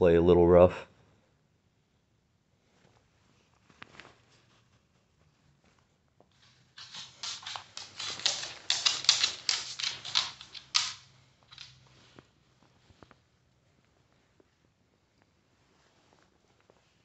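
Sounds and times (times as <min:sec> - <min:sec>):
hand rubbing cat's fur: 0:02.6 - 0:10.9.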